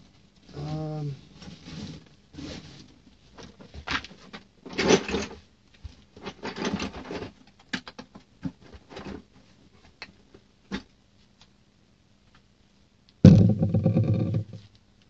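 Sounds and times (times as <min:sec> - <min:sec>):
tools rustling and clattering: 0:01.4 - 0:07.6.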